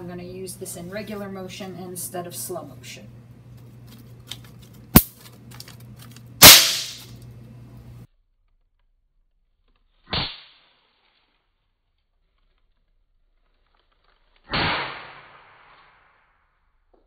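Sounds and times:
sharp detonation cracks: 6.4 - 7.0, 14.5 - 15.8.

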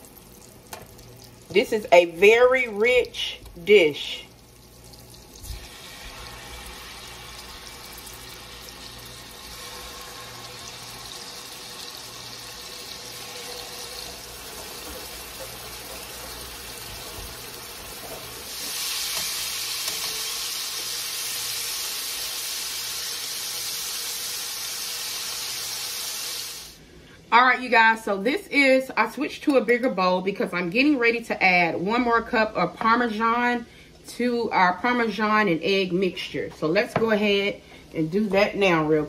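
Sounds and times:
chicken sizzling in a skillet: 4.3 - 26.8.

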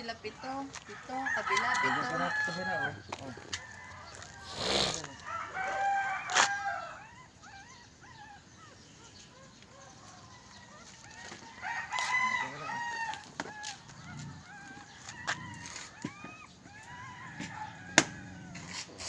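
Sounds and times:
rooster crowing: 0.9 - 7.2, 10.4 - 18.9
chicken clucks and chirps: 1.8 - 19.0.

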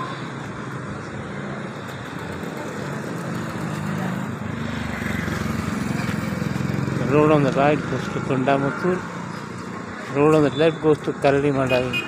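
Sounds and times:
road traffic: 0.0 - 12.0
motorcycle engine running: 1.9 - 8.4.

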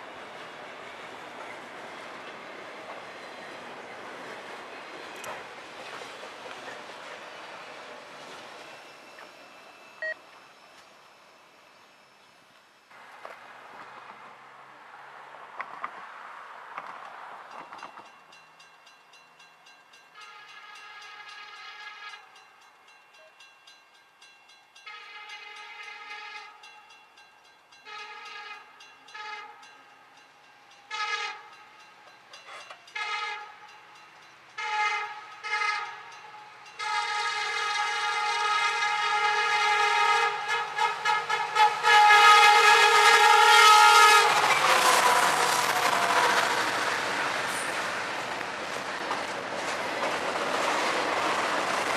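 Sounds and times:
locomotive engine and rail rumble: 0.0 - 51.9
locomotive air horn blasts: 20.2 - 22.3, 24.8 - 26.6, 27.8 - 29.7, 30.9 - 31.6, 32.9 - 33.7, 34.6 - 36.2, 36.8 - 46.8.

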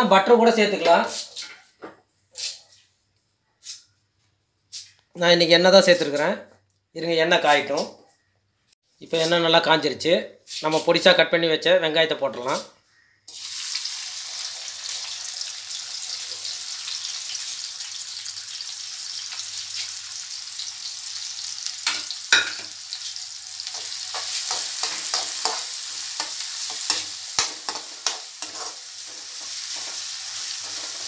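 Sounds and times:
onions sizzling in hot oil: 13.3 - 31.0
spoon scraping a metal pan: 23.7 - 31.0.

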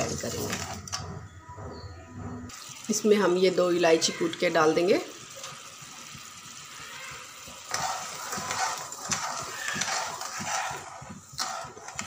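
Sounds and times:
syrup sizzling: 2.5 - 12.0
metal spoon scraping a pan: 7.6 - 12.0.

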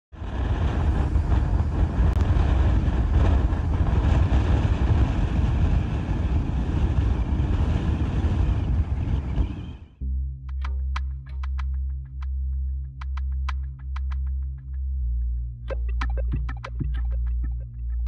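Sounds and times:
gusty wind on microphone: 0.1 - 10.0.

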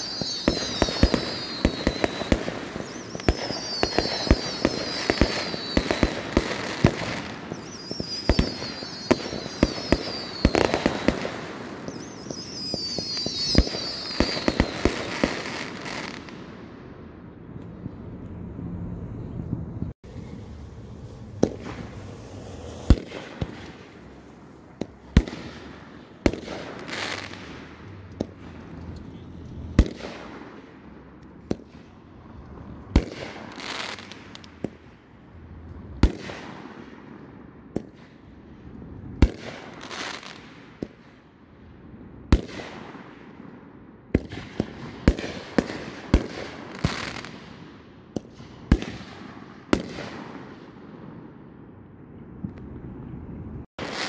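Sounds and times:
fireworks crackling hiss: 0.0 - 16.4, 20.0 - 30.4, 32.4 - 34.8, 39.2 - 41.0, 44.2 - 47.6, 53.8 - 54.0
fireworks bangs: 0.0 - 18.2, 19.9 - 35.0, 38.9 - 41.2, 42.3 - 52.8, 53.6 - 54.0.

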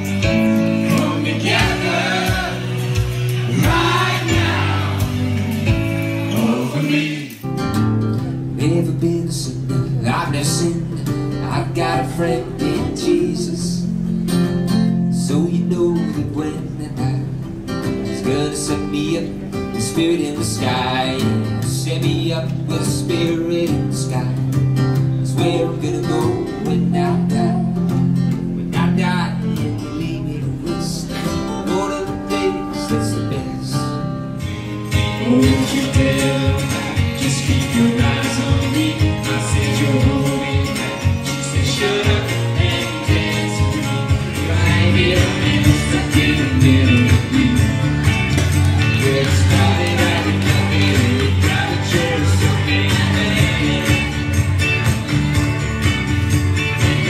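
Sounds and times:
person singing: 0.0 - 7.4, 35.1 - 54.7
live band song with beat: 0.0 - 8.4, 34.4 - 57.0
keyboard: 0.0 - 57.0
strummed acoustic guitar: 0.0 - 57.0.

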